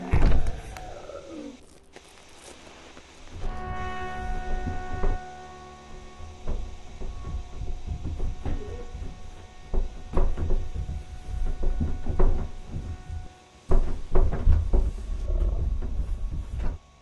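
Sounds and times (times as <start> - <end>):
heavy thuds and knocks: 3.4 - 17.0.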